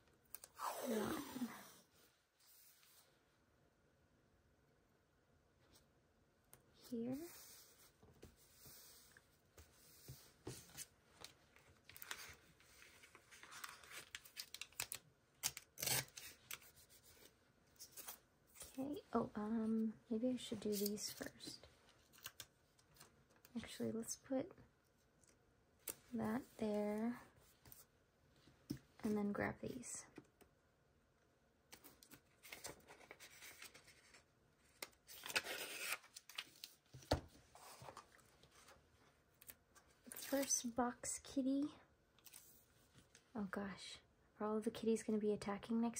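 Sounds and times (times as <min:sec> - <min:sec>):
paper rustling: 0:31.7 - 0:38.8.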